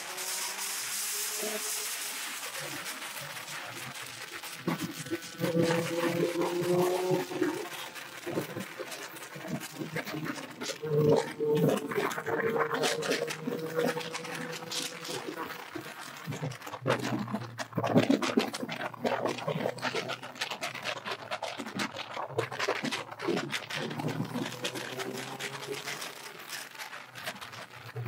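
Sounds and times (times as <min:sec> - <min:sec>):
motorcycle engine running: 0:03.3 - 0:16.6.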